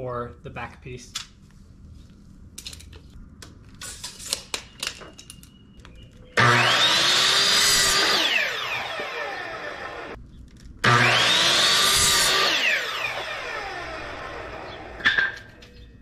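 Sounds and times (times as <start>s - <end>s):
miter saw cutting wood: 6.4s - 10.2s, 10.8s - 15.0s.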